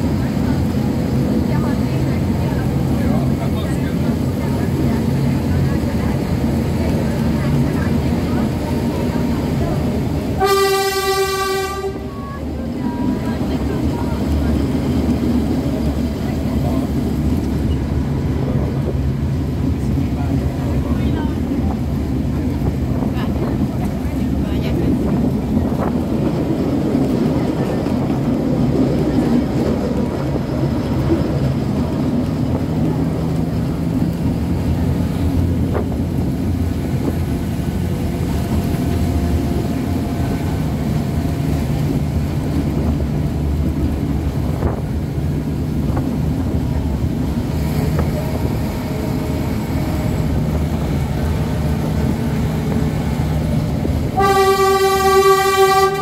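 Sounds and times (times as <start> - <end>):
train rumbling: 0.0 - 56.0
train horn: 10.4 - 12.2, 54.1 - 56.0.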